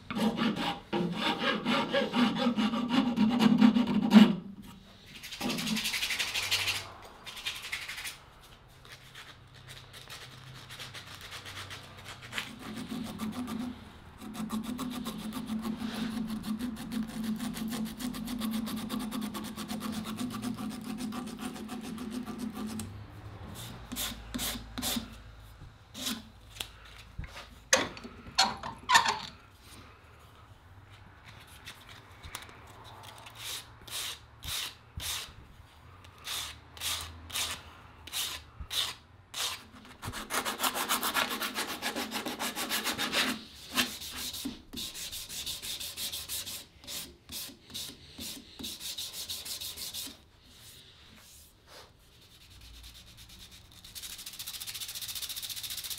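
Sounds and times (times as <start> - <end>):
rasping strokes on wood: 0.1 - 4.4.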